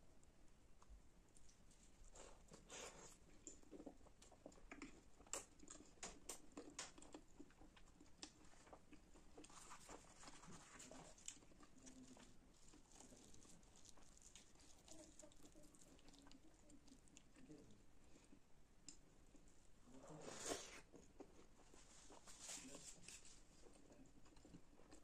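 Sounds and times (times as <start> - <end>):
wet chewing mouth sounds: 2.1 - 17.6.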